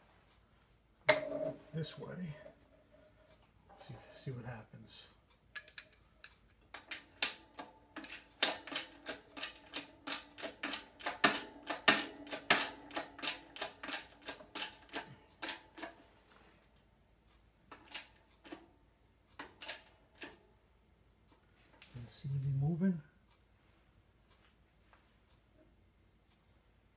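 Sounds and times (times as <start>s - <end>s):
jack pump handle clicking: 6.7s - 15.9s.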